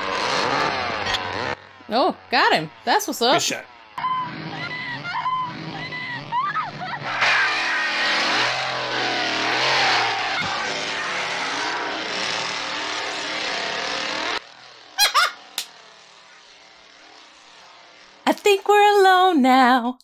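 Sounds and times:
chainsaw revving: 0.0s - 18.2s
woman laughing: 15.0s - 15.4s.

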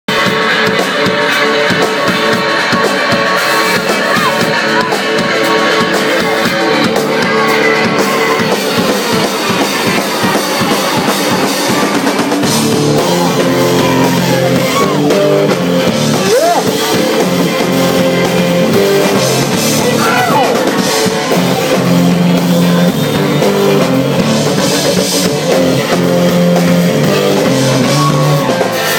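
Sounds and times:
live blues band playing: 0.1s - 28.9s
slide electric guitar: 0.1s - 28.9s.

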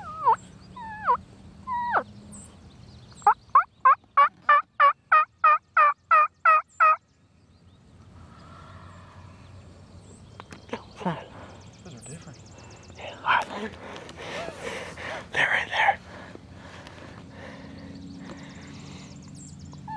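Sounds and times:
turkey yelping: 0.0s - 2.0s, 3.2s - 7.0s.

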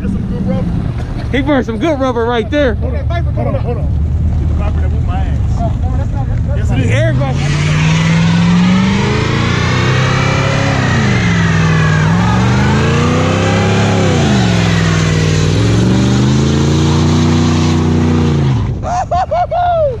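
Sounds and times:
truck engine revving hard: 6.6s - 18.9s.

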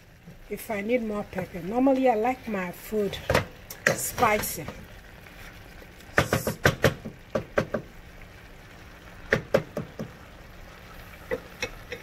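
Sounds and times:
wooden spatula knocking on pot: 6.2s - 7.9s, 9.3s - 10.2s.

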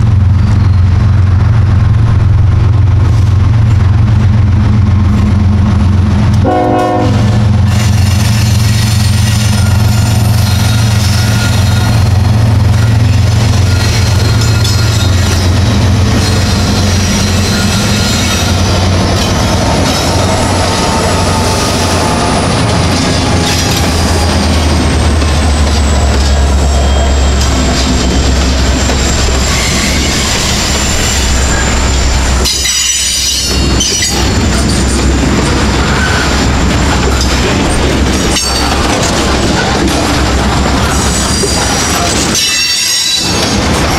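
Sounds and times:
diesel locomotives rumbling: 0.0s - 43.9s
freight cars wheel-on-rail clacking: 0.0s - 43.9s
high wheel squeal: 7.8s - 24.8s, 25.4s - 34.4s, 35.8s - 36.6s.

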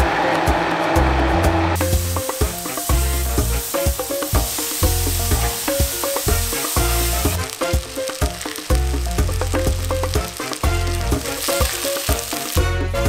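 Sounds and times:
background music with bass: 0.0s - 13.0s
chicken sizzling on grill: 1.7s - 13.0s
rice sizzling in hot pot: 1.8s - 13.0s.

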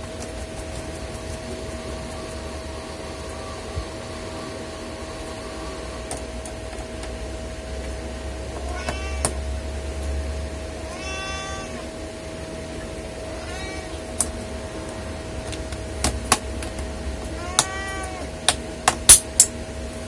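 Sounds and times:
steady hum: 0.0s - 20.0s
cat meowing: 8.6s - 9.5s, 10.8s - 12.0s, 13.2s - 14.2s, 17.2s - 18.4s.

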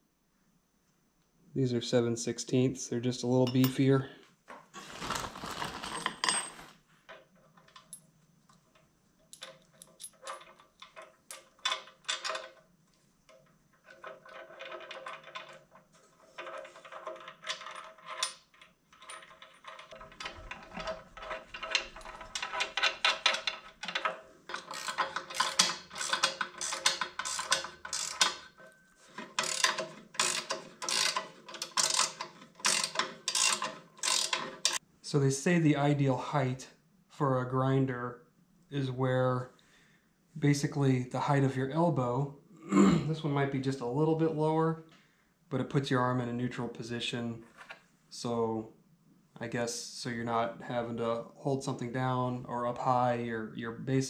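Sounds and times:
metal parts clinking: 4.9s - 6.7s, 9.3s - 12.6s, 16.4s - 34.8s
ratchet wrench clicking: 24.5s - 28.5s, 29.4s - 34.8s.

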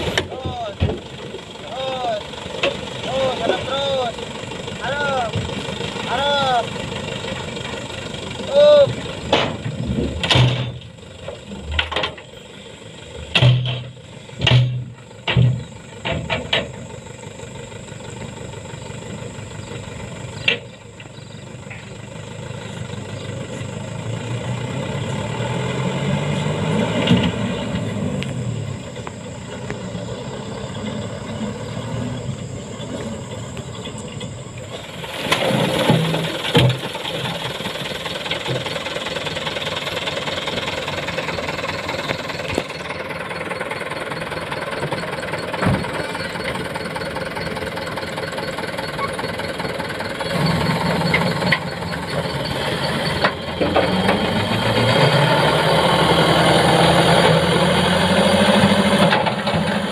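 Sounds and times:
truck engine revving: 0.0s - 59.9s
stones clattering off truck bed: 9.3s - 12.3s, 34.8s - 37.6s.

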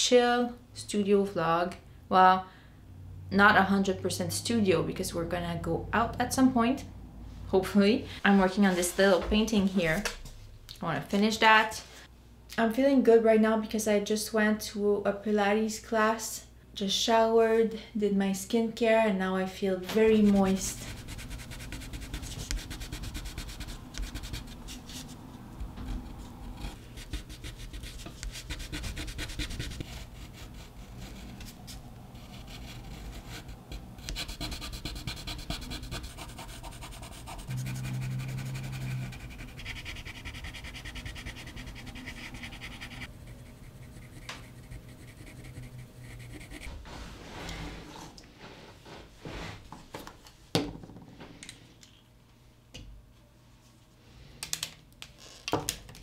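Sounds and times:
pencil scratching on paper: 20.0s - 25.2s, 25.9s - 46.8s.

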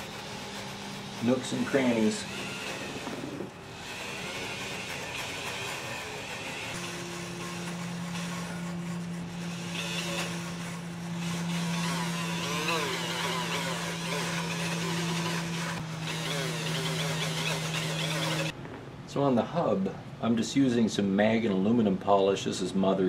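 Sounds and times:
rotary tool motor hum: 0.0s - 18.6s
wire brush rasping on metal: 0.0s - 18.6s.

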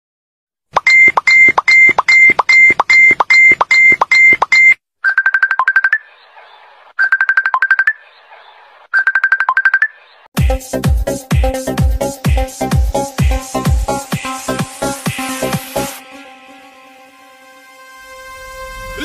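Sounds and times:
electronic music of high beeps: 0.8s - 6.1s, 7.0s - 8.0s, 9.0s - 10.0s.

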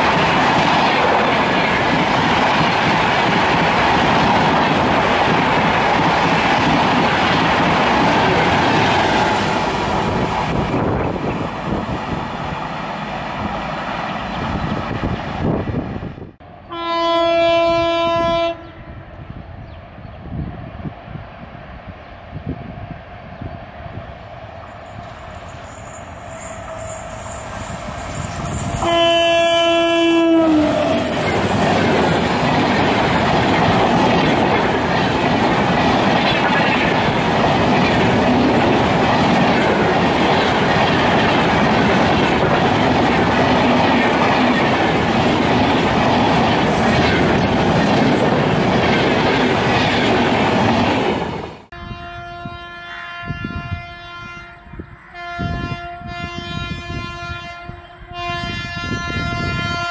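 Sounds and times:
wheels rumbling on rails: 0.0s - 16.4s, 19.6s - 51.7s
rail noise: 0.0s - 59.9s
train horn: 16.6s - 19.1s, 28.8s - 32.0s, 51.7s - 59.9s.

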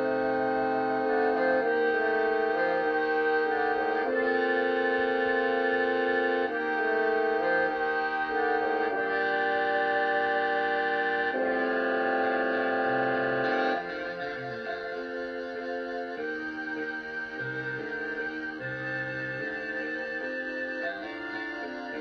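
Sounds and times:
concert band sustained chords: 0.0s - 22.0s.

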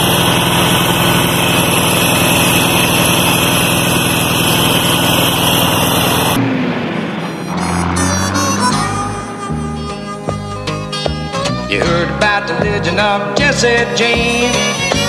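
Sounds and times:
ride-on lawn mower engine running: 0.0s - 15.0s
country song instrumental: 7.6s - 15.0s.

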